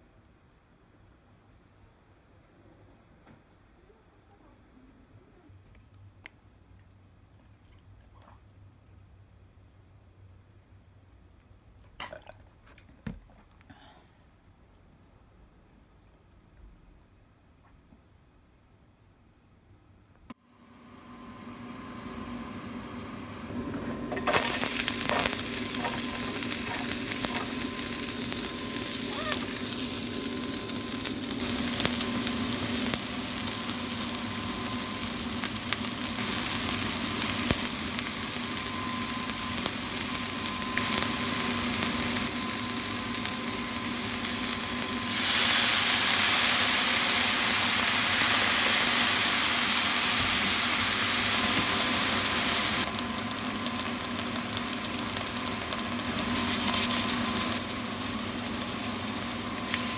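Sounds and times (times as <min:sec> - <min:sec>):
vegetables sizzling in a pan: 0:24.1 - 0:59.9.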